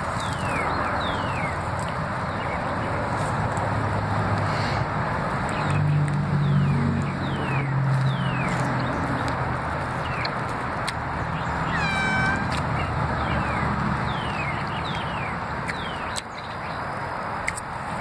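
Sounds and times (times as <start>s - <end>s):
high falling chirps: 11.4s - 12.9s
animal mewing call: 11.6s - 12.6s.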